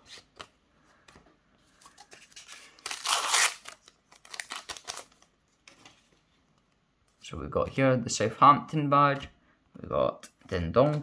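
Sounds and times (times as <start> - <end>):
foil pack tearing open: 2.7 - 5.1.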